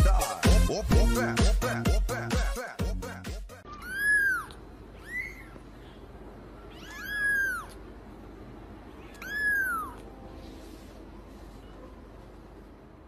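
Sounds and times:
kitten meowing: 3.7s - 5.6s, 6.6s - 7.8s, 9.0s - 10.1s.

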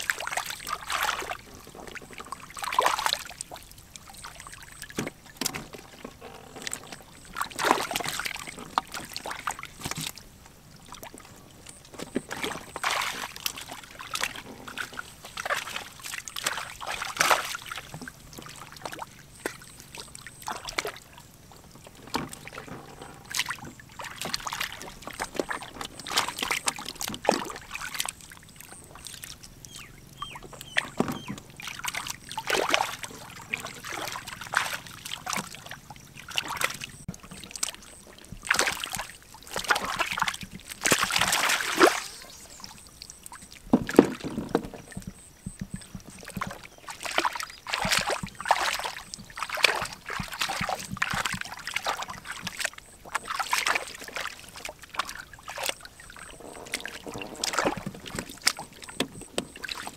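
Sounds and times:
hands splashing in muddy water: 12.3s - 19.6s, 38.5s - 42.4s, 46.3s - 58.7s.

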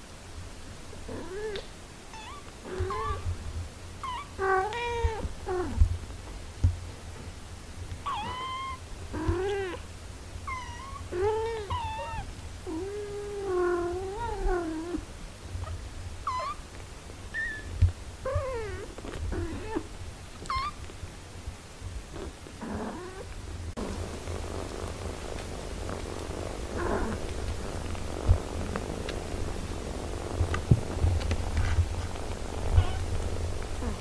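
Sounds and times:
kittens mewing: 8.1s - 9.8s.

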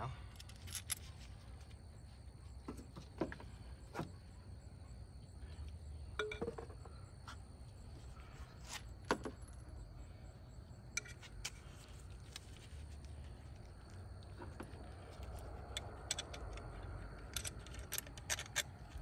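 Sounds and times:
metallic clicks of car parts handled: 0.3s - 1.3s, 14.4s - 19.0s.

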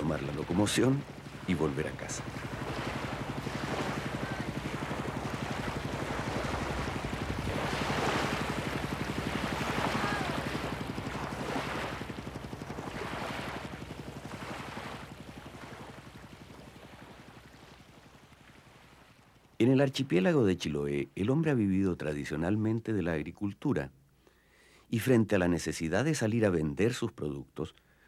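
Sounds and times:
boat engine throbbing: 0.0s - 18.5s
choppy water splashing: 0.0s - 19.6s.

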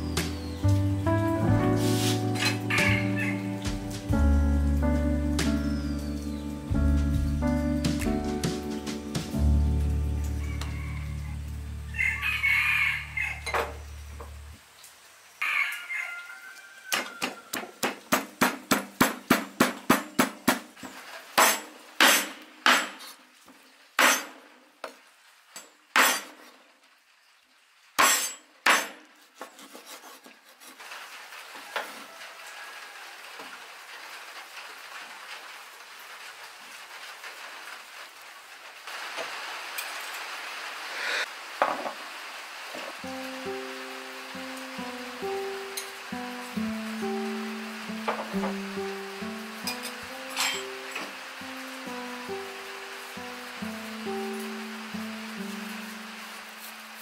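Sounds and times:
steady hiss: 0.0s - 2.6s, 33.6s - 57.0s
cleaver chopping on wooden board: 17.2s - 20.7s
pestle pounding in wooden mortar: 17.2s - 20.7s.

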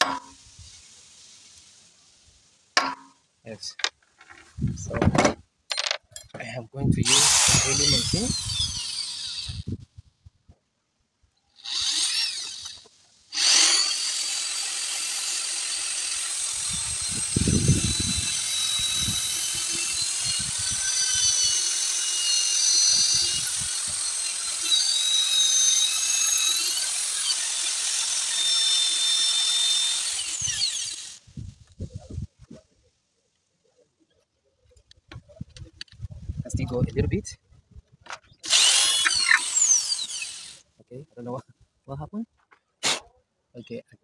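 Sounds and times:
electric drill whining: 7.0s - 9.8s, 11.6s - 31.2s, 38.4s - 40.6s.

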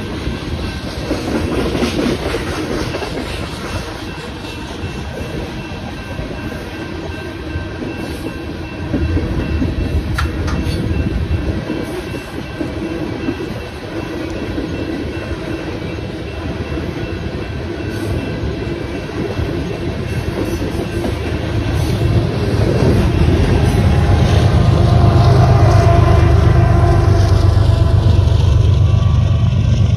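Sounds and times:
diesel locomotive engine drone: 0.0s - 29.9s
freight train rumbling past: 0.0s - 29.9s.

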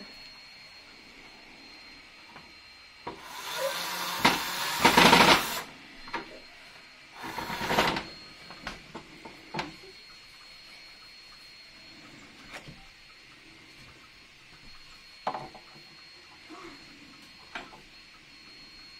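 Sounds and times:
cordless drill driving screw: 3.2s - 5.7s, 7.2s - 8.0s.

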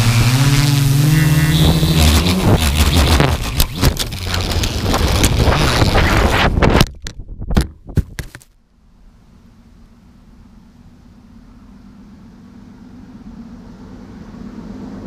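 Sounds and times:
drone propellers buzzing: 0.0s - 6.8s
faint low hum: 8.6s - 15.0s.

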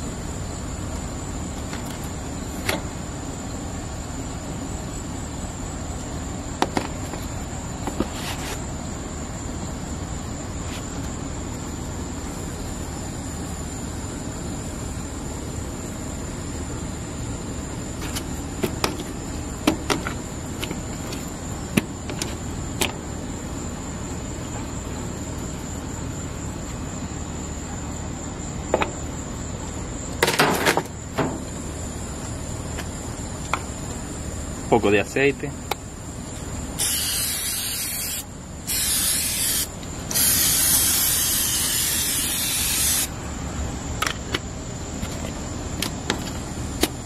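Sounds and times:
high-pitched insect drone: 30.9s - 44.9s.

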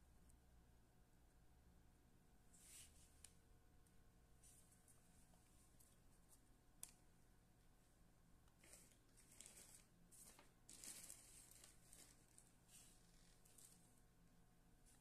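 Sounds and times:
faint rustling: 8.6s - 14.0s.

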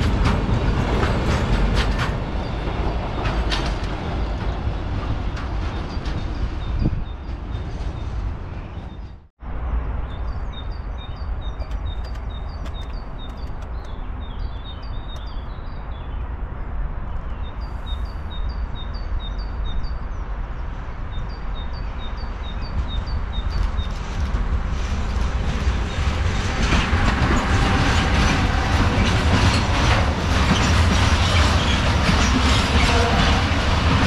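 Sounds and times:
songbird chirping: 6.6s - 16.4s.

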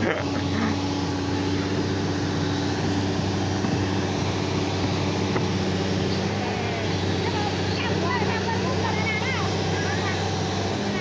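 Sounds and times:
excavator diesel engine droning: 0.0s - 11.0s.

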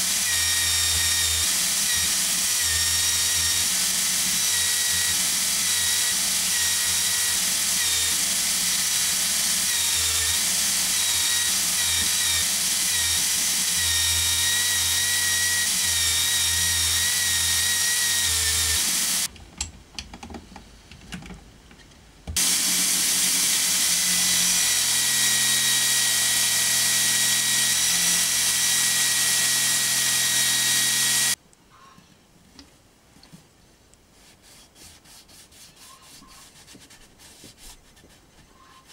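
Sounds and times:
electric drill motor whine: 0.0s - 19.3s, 22.4s - 31.4s.

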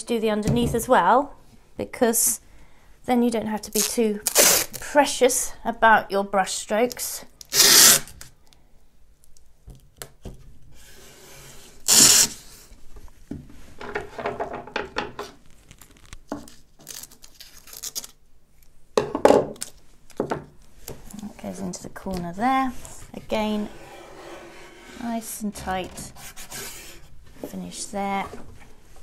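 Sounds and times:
masking tape ripping off roll: 3.8s - 4.9s, 7.4s - 8.3s, 11.8s - 12.4s, 15.5s - 16.2s, 16.8s - 18.2s
tape rubbing on wood: 7.5s - 8.2s, 11.8s - 12.5s.

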